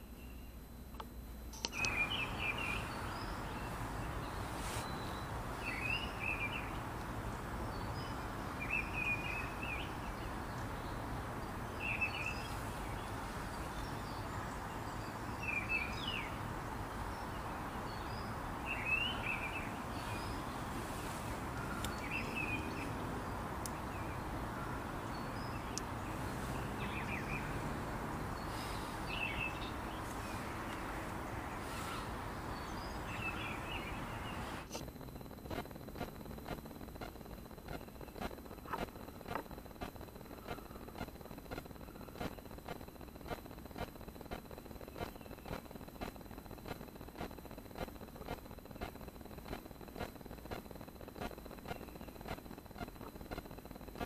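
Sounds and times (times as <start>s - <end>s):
outdoor background hiss: 0.0s - 54.0s
bird chirping: 1.5s - 35.3s.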